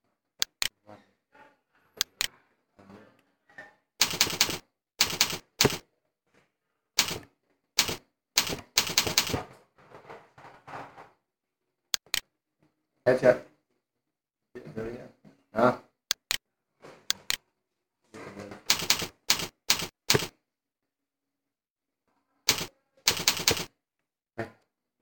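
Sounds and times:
keyboard typing: 0:00.4 - 0:00.7, 0:04.0 - 0:05.8, 0:07.0 - 0:09.4, 0:12.0 - 0:12.3, 0:16.1 - 0:16.4, 0:18.7 - 0:20.3, 0:22.5 - 0:23.7.

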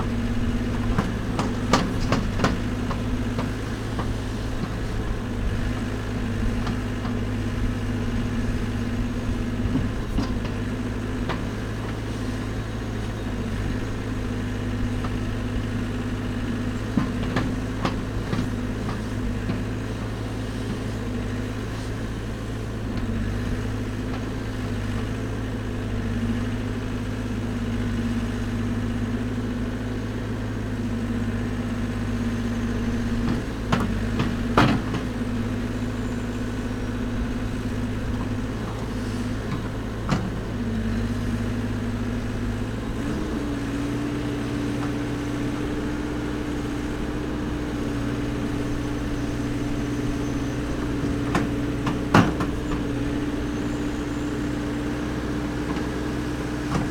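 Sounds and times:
backhoe arm digging soil: 0:00.0 - 0:27.4, 0:30.2 - 0:56.9
diesel engine running: 0:00.0 - 0:56.9
sharp clicks and knocks: 0:00.8 - 0:04.8.

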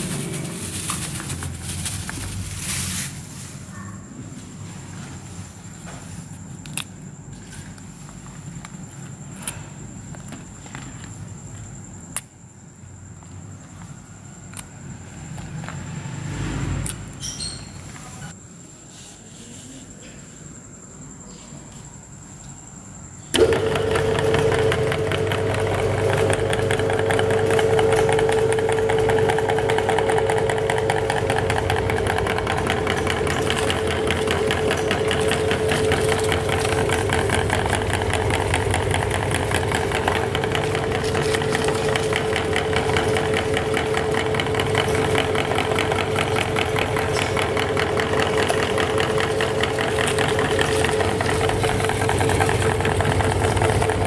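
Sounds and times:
meat grinder humming: 0:23.4 - 0:54.0.

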